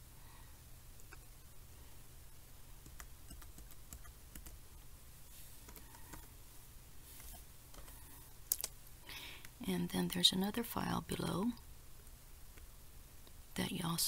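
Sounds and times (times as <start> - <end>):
laptop keyboard typing: 2.8 - 4.6, 5.6 - 6.3.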